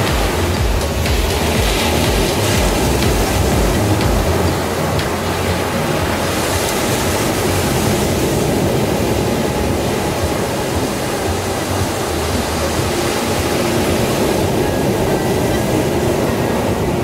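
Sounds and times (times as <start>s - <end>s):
sea surf breaking on beach: 0.0s - 17.0s.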